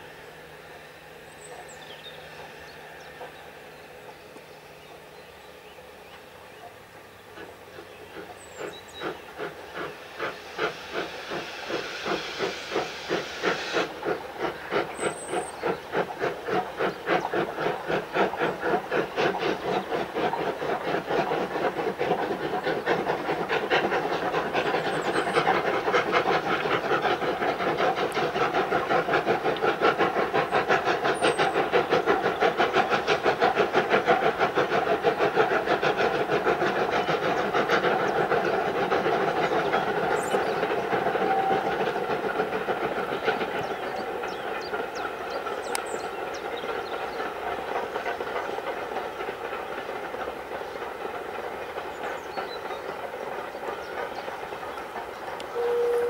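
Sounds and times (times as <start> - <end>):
steam hiss: 0.0 - 56.0
steam locomotive exhaust beats: 0.0 - 56.0.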